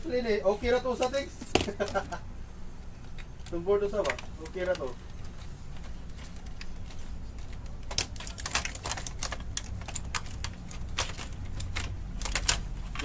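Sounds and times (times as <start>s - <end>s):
plastic and metal parts clicking: 3.1s - 5.2s, 5.8s - 13.0s.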